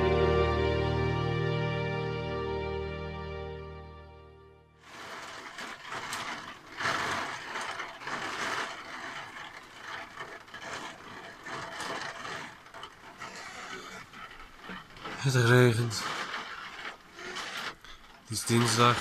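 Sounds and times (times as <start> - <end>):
rain pattering on glass: 4.8 - 19.0.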